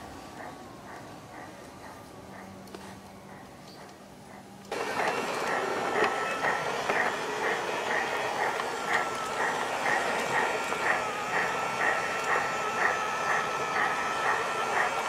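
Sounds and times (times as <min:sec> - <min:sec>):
rhythmic steam chuff: 0:00.0 - 0:15.0
model locomotive motor whine: 0:04.7 - 0:15.0.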